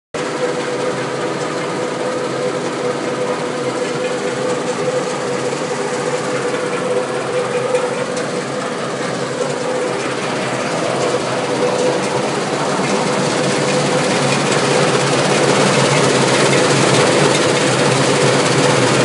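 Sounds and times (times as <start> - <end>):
machinery hum with steady tone: 0.2 - 19.0.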